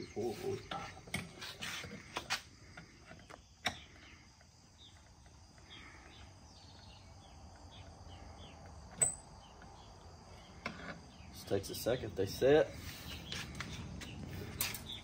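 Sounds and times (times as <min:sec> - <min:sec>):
insect chirps: 0:00.0 - 0:15.0
bird chirps: 0:03.1 - 0:11.9, 0:12.8 - 0:15.0.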